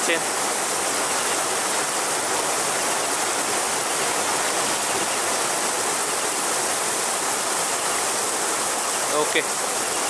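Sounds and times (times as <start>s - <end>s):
stream water rushing: 0.0s - 10.0s.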